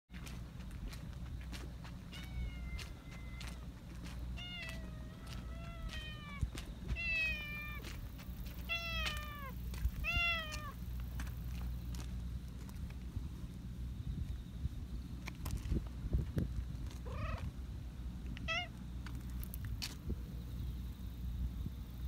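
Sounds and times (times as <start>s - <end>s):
cat meowing: 2.1s - 3.6s, 4.4s - 6.4s, 7.0s - 7.8s, 8.7s - 10.8s, 17.1s - 17.5s, 18.4s - 18.7s.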